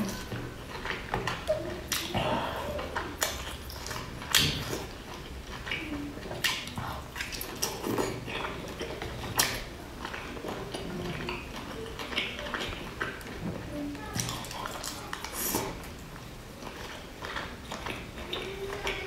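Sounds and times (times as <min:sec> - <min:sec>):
chewing dumplings: 0:00.0 - 0:19.0.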